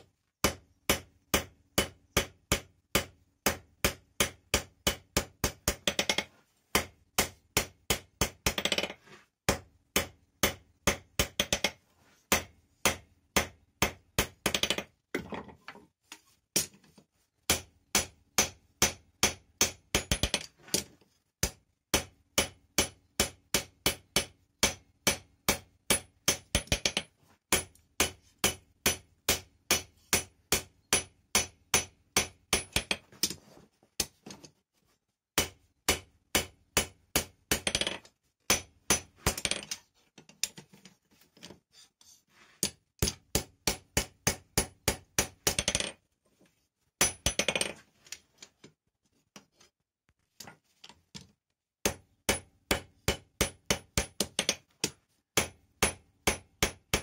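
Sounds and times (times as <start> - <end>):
hammer striking hot steel on anvil: 27.5 - 32.9, 35.4 - 37.6.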